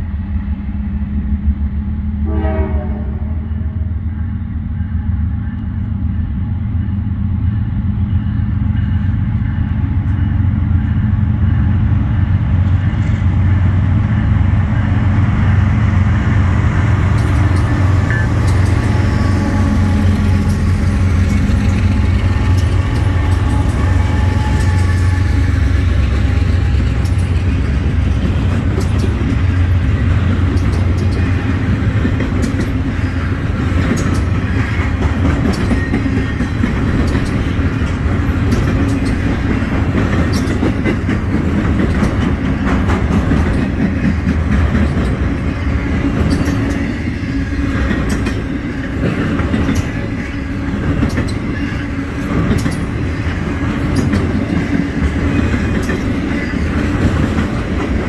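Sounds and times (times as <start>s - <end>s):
diesel locomotive engine drone: 0.0s - 58.0s
train wheels clicking over rail joints: 14.7s - 58.0s.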